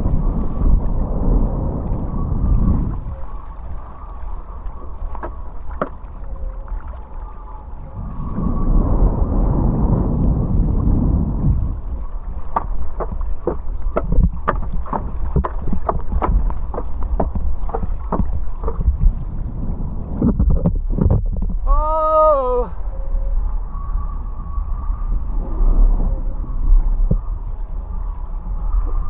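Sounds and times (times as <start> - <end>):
water rushing past board: 0.0 - 21.9
wind buffeting microphone: 0.0 - 29.0
water splashes and slaps: 2.8 - 7.7, 9.9 - 21.8.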